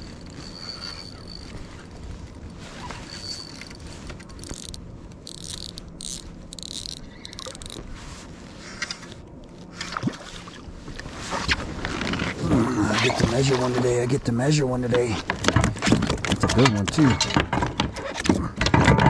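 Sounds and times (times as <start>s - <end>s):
fishing reel spinning: 0.0s - 2.4s, 3.0s - 7.8s
rod and reel handling noise: 0.0s - 19.0s.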